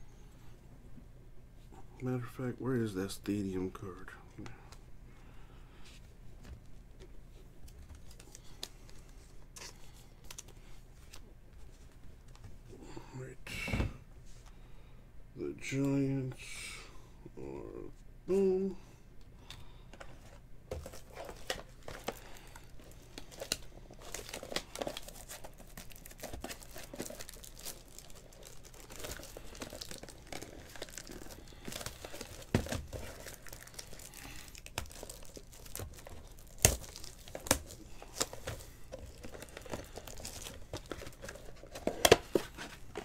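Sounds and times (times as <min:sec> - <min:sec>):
plastic wrapping crinkling: 0:20.7 - 0:43.0.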